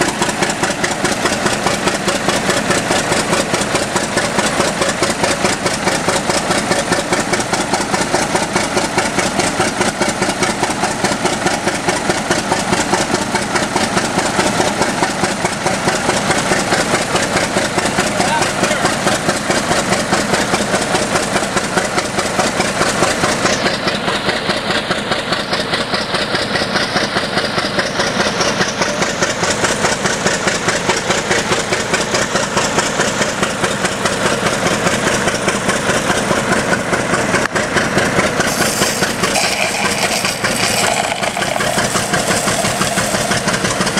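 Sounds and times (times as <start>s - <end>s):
fire engine running under load: 0.0s - 43.9s
hose stream hissing: 38.4s - 43.9s.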